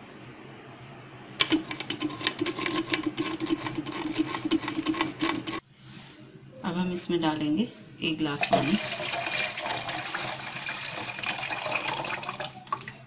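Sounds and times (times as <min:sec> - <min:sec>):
spoon scraping metal strainer: 0:01.4 - 0:05.6.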